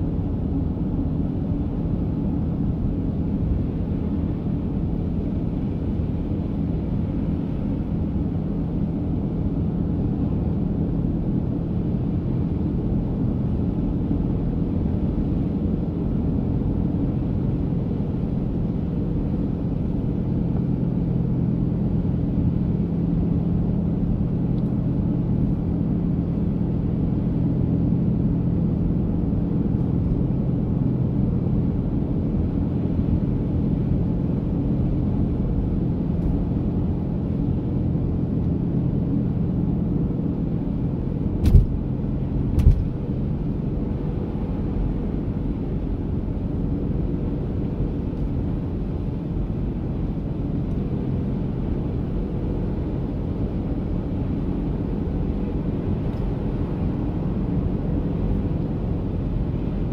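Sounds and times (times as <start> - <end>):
car engine hum and tyre rumble: 0.0 - 59.9
sharp thumps: 41.4 - 41.7.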